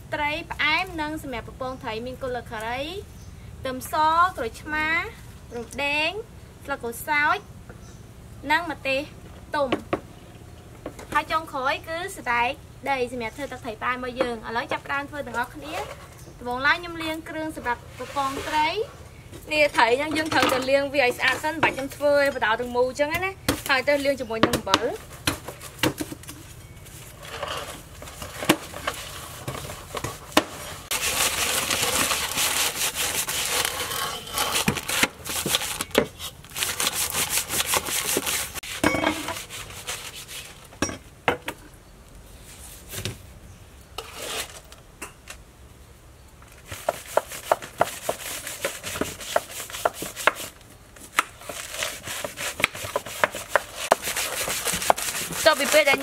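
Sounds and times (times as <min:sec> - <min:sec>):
salt scraping over fish skin: 0:30.6 - 0:40.7, 0:51.4 - 0:56.0.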